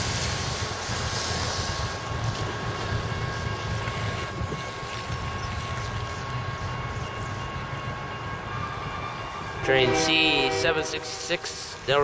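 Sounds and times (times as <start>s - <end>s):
diesel freight train: 0.0s - 12.0s.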